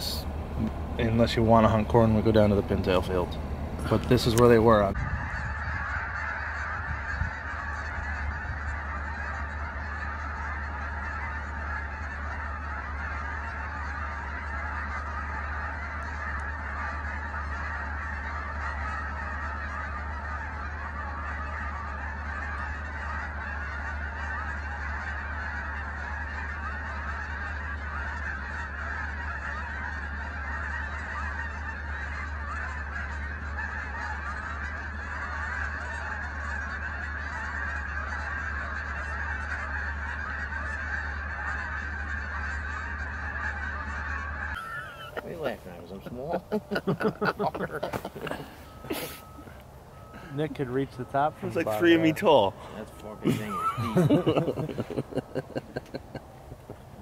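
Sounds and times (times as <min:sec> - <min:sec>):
flock of geese honking: 0:00.0 - 0:57.0.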